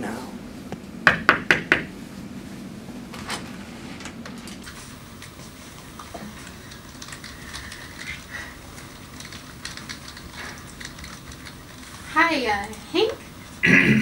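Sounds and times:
computer keyboard typing: 0:05.2 - 0:13.3.

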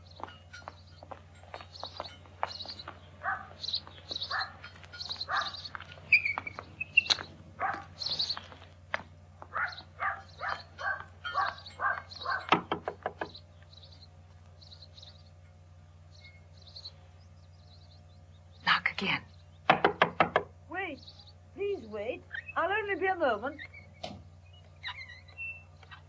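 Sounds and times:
footsteps on garden path: 0:00.0 - 0:16.1, 0:21.6 - 0:26.0
small birds chirping: 0:00.0 - 0:26.0
knocking on wooden door: 0:12.5 - 0:13.4, 0:19.6 - 0:20.5.

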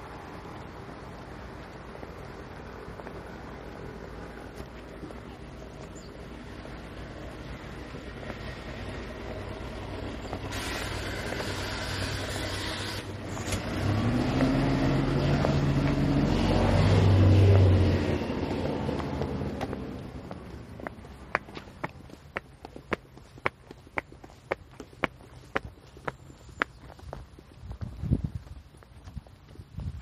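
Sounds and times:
vehicle engine passing by: 0:00.0 - 0:21.8
hiss: 0:10.5 - 0:13.1.

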